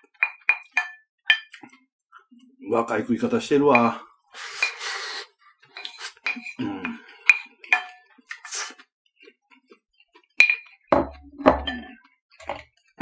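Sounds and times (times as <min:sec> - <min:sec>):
eating noises: 0:04.3 - 0:10.9
wooden spoon scraping plate: 0:04.5 - 0:08.0.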